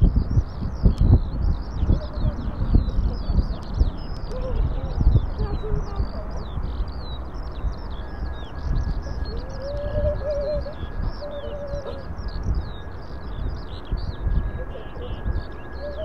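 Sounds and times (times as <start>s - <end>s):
small birds chirping: 0.0s - 16.0s
lower wavering bird call: 8.0s - 12.9s, 14.2s - 16.0s.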